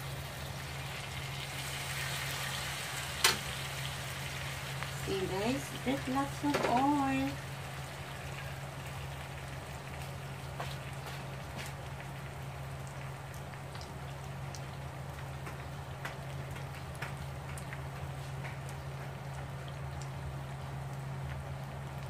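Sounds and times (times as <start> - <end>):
food sizzling in hot oil: 0.0 - 18.0.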